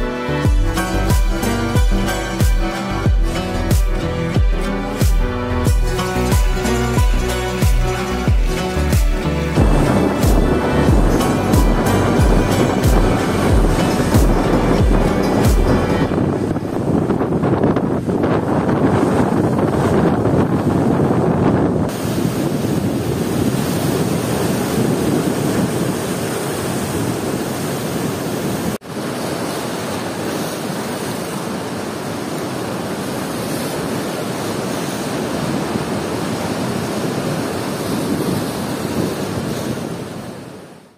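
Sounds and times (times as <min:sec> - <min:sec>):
wind buffeting microphone: 0:00.0 - 0:40.7
sea surf breaking on stone shore: 0:00.0 - 0:40.9.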